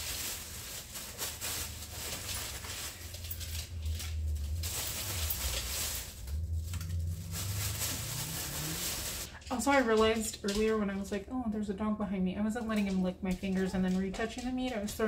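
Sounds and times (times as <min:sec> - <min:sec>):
plastic bag crinkling: 0:00.0 - 0:10.7
low steady hum: 0:00.1 - 0:15.0.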